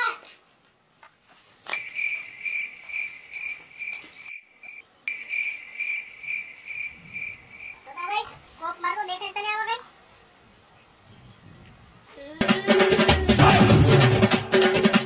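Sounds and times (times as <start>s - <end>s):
insect chirping: 1.7s - 12.1s.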